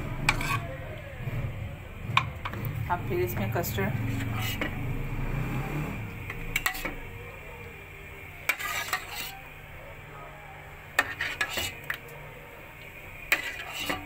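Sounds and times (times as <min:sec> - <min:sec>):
metal spoon clinking on pot: 0:06.5 - 0:07.0.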